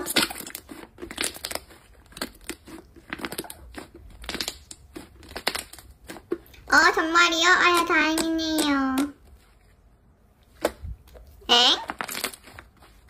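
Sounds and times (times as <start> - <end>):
slime crackling and clicking: 0.0 - 6.6.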